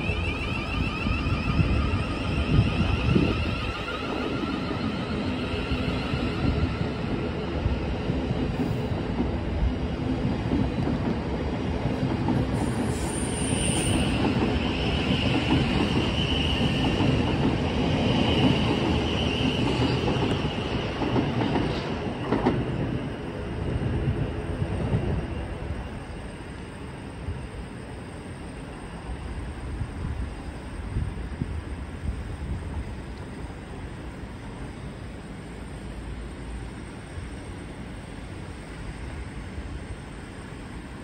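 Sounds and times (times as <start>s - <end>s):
train wheel squeal: 0.0s - 9.0s, 12.4s - 31.5s
electric train rumbling: 0.0s - 41.0s.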